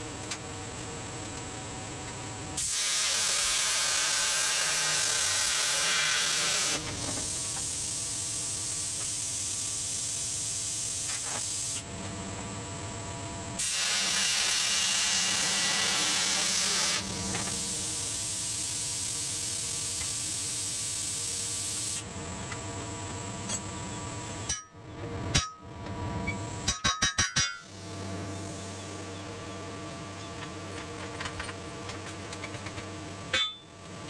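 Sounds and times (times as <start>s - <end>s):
electric arc buzzing hiss: 2.6s - 11.9s, 13.6s - 22.1s.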